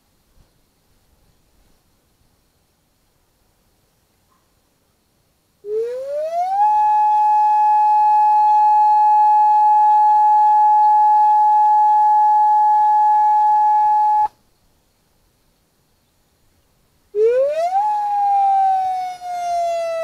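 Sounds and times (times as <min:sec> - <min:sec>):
siren alert tone: 0:05.8 - 0:14.3, 0:17.2 - 0:20.0.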